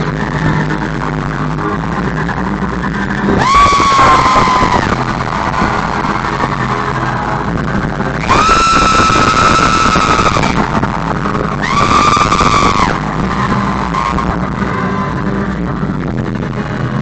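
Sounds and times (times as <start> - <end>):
high wailing note: 3.3 - 7.3, 8.2 - 15.2.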